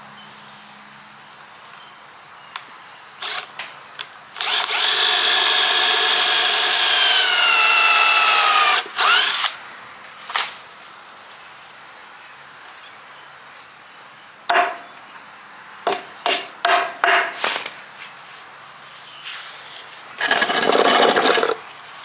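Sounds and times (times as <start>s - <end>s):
cordless drill boring into wood: 3.2s - 3.5s, 4.4s - 9.6s.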